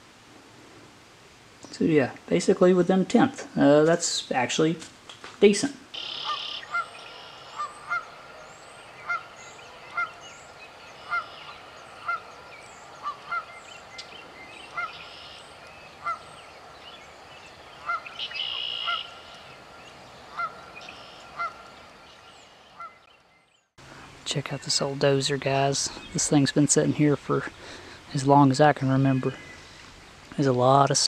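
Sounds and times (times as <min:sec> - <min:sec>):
goose honking: 0:06.0 - 0:13.7, 0:14.7 - 0:16.4, 0:17.8 - 0:19.5, 0:20.3 - 0:21.7, 0:22.8 - 0:23.0.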